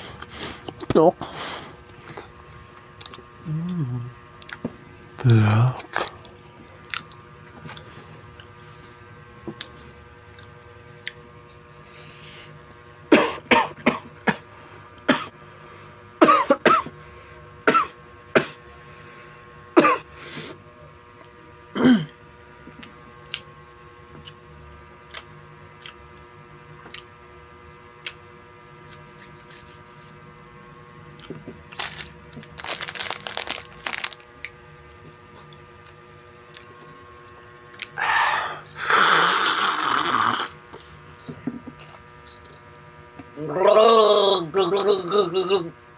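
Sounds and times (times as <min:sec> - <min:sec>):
man clearing his throat: 0:13.1 - 0:14.5, 0:15.1 - 0:15.3, 0:16.2 - 0:16.9, 0:17.6 - 0:18.6, 0:19.8 - 0:20.1, 0:21.8 - 0:22.2, 0:44.1 - 0:45.7
man coughing: 0:13.1 - 0:14.5, 0:15.1 - 0:15.3, 0:16.2 - 0:16.9, 0:17.6 - 0:18.6, 0:19.8 - 0:20.1, 0:21.8 - 0:22.2.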